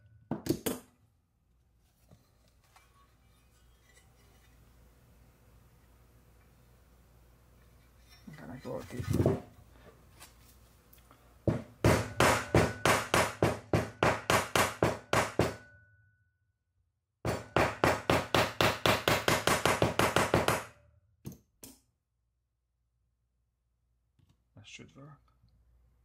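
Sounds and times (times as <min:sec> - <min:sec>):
hammer tapping metal: 0:11.5 - 0:15.9, 0:17.2 - 0:20.8.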